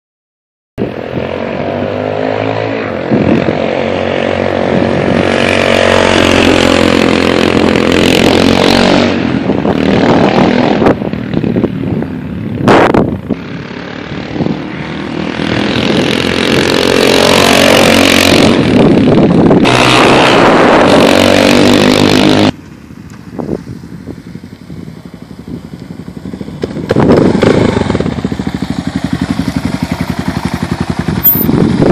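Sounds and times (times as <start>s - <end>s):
motorcycle engine revving: 0.8s - 31.9s
motorcycle engine idling: 22.5s - 31.9s.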